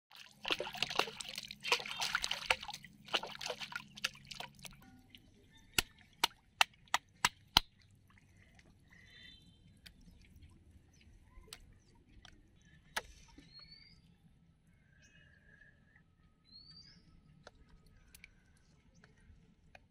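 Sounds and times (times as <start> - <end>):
water splashing and churning: 0.1 - 12.4.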